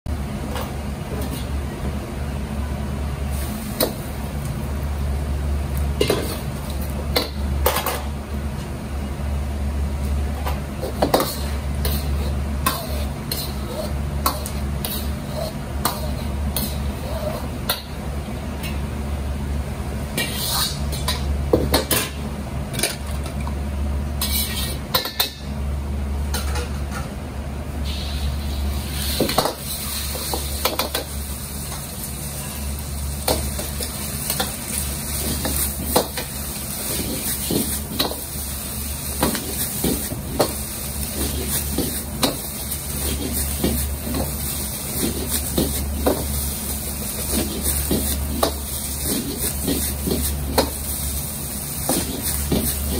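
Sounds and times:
gas burner rumble: 0:00.1 - 0:52.9
metal ladle scraping wok: 0:24.2 - 0:24.8
food sizzling in oil: 0:27.8 - 0:52.9.

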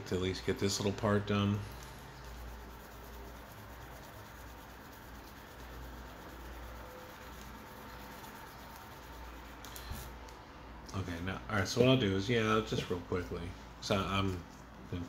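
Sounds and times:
buffer block rubbing on plastic: 0:01.8 - 0:09.6.

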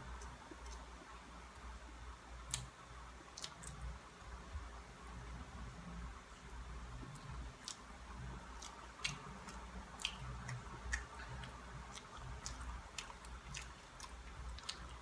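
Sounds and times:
wet chewing and lip-smacking: 0:00.1 - 0:01.0, 0:02.4 - 0:02.7, 0:03.3 - 0:03.9, 0:07.1 - 0:15.0.

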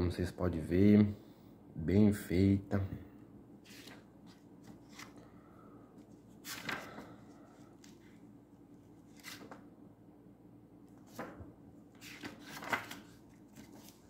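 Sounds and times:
faint steady hum: 0:00.0 - 0:14.0
book pages turning: 0:03.6 - 0:05.3, 0:06.0 - 0:08.2, 0:09.0 - 0:09.7, 0:10.9 - 0:14.0.

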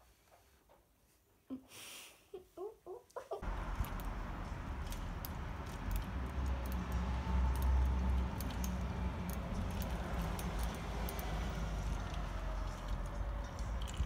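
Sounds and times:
steady low rumble: 0:03.4 - 0:14.0.

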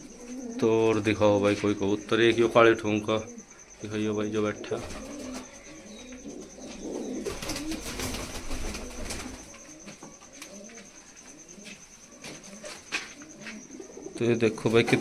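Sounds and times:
pigeons cooing: 0:00.0 - 0:15.0
wings flapping and scuffling: 0:04.7 - 0:15.0.

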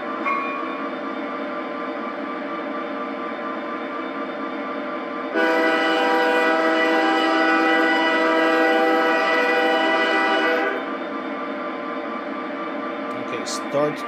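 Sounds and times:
locomotive air horn blast: 0:05.3 - 0:10.8.

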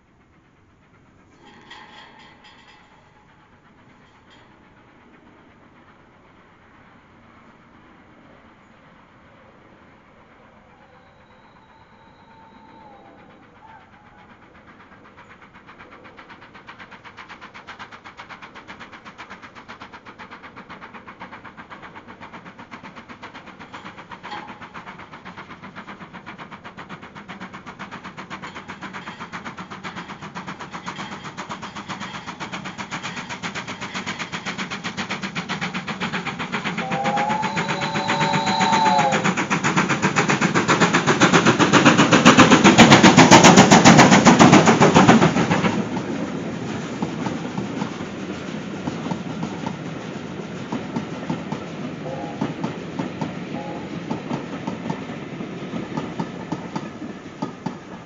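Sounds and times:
steam locomotive exhaust beats: 0:00.0 - 0:58.0
steam whistle: 0:10.8 - 0:14.2, 0:36.7 - 0:39.4, 0:52.0 - 0:52.6, 0:53.5 - 0:54.0.

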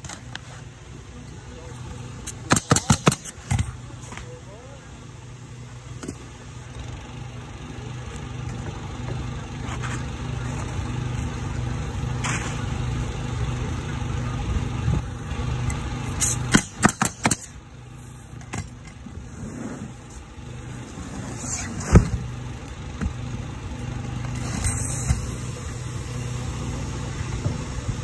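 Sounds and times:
low engine hum: 0:00.0 - 0:28.0
nail gun shots: 0:02.3 - 0:03.6, 0:16.2 - 0:17.6.

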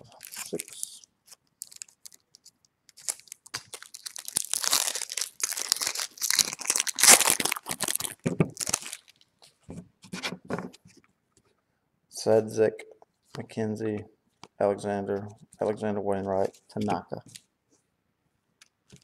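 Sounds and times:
card pack wrapper ripping: 0:00.0 - 0:09.2.

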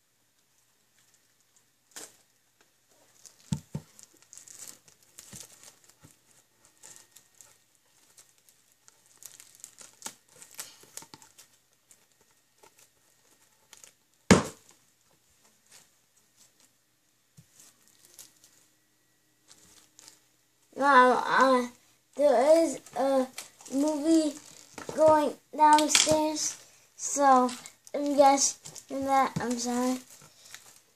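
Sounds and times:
plastic wrap crinkling and tearing: 0:00.9 - 0:14.8, 0:17.6 - 0:18.8, 0:19.4 - 0:20.3, 0:21.0 - 0:30.9
box thumping on hard floor: 0:14.3 - 0:14.6.

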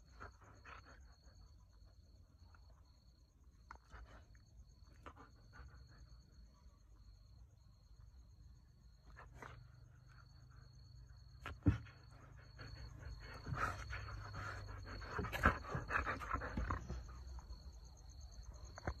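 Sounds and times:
dog panting: 0:11.6 - 0:17.5.

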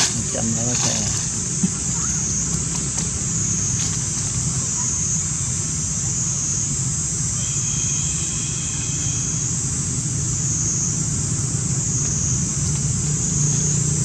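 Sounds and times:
low engine rumble: 0:00.0 - 0:07.6.

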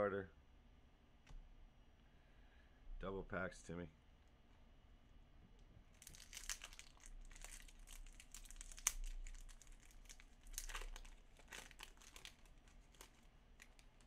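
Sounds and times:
card pack wrapper crinkling: 0:05.9 - 0:14.0.

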